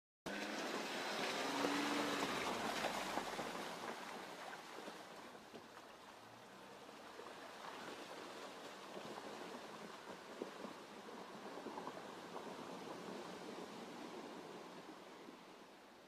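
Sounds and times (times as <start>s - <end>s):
low car engine: 0.3s - 7.4s
tyres on wet muddy ground: 0.3s - 16.0s.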